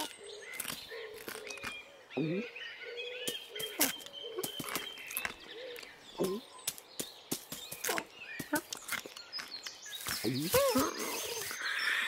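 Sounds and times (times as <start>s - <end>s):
bird chirps: 0.0s - 12.0s.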